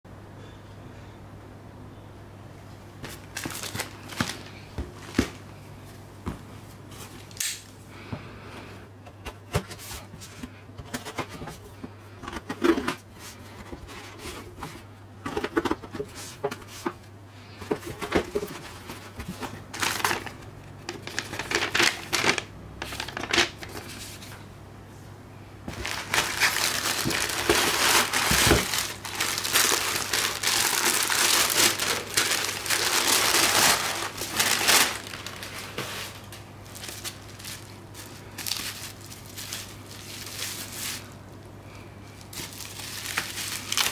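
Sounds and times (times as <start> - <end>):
faint steady hum: 0.1 - 43.9
cardboard parcel handled: 3.0 - 5.6, 12.2 - 24.3, 25.7 - 41.2, 42.2 - 43.9
tissue paper crinkling: 25.7 - 41.2, 42.2 - 43.9.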